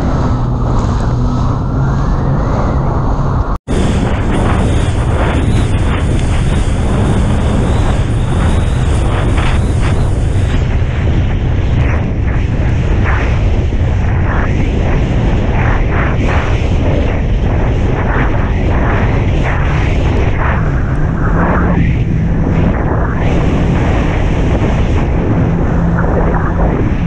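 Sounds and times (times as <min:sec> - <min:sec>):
jet ski engine: 0:00.0 - 0:10.9
wind buffeting microphone: 0:00.0 - 0:27.0
spray and hull slapping waves: 0:03.7 - 0:21.1.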